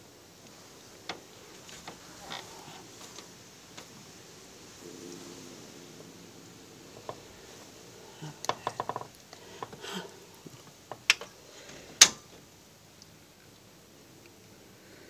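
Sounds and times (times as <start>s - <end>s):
opossum crunching food: 0.4s - 4.4s, 6.9s - 12.3s.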